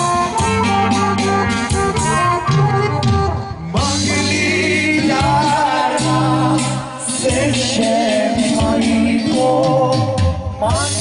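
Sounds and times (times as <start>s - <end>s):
band accompaniment: 0.0s - 11.0s
person singing folk melody: 3.6s - 11.0s.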